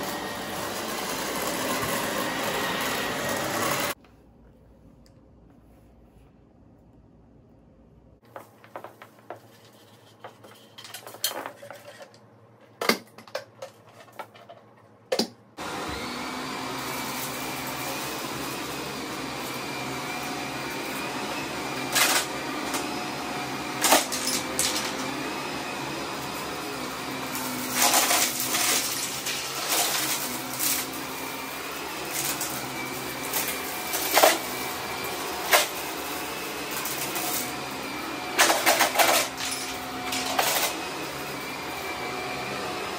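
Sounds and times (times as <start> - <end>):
vacuum cleaner running: 0.0 - 4.0, 15.6 - 42.9.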